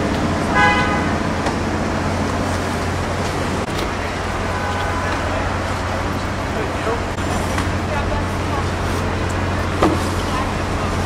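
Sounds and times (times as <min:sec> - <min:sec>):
city street traffic: 0:00.0 - 0:11.0.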